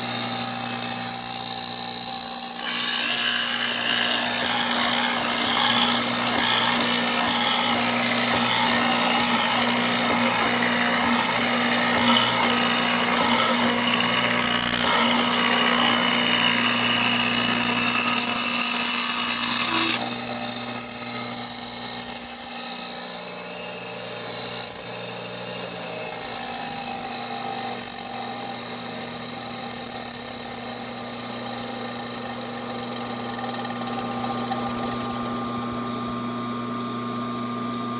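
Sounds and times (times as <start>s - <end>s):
chisel rasping into wood: 0.0s - 23.2s
drill press motor hum: 0.0s - 37.7s.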